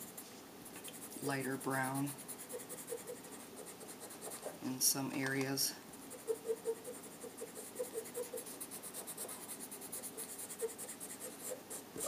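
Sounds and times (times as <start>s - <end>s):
chalk tool scratching paper: 0.0s - 4.6s, 5.9s - 12.0s.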